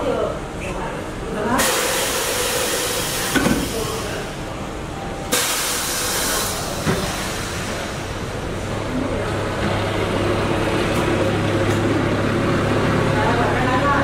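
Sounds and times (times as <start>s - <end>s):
compressed air hiss: 1.6s - 3.9s, 5.3s - 8.0s.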